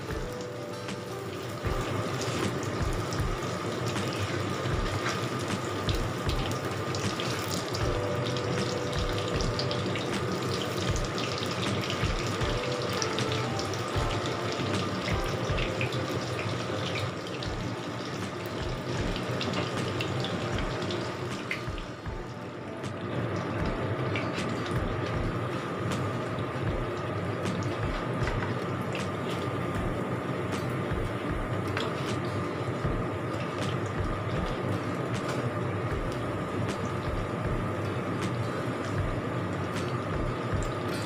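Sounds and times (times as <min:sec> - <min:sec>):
fritters deep-frying in oil: 0:00.0 - 0:22.3.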